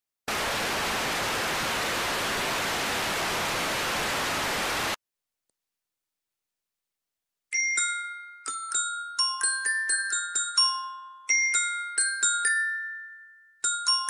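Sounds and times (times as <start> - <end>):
tv static hiss: 0.3 - 5.0.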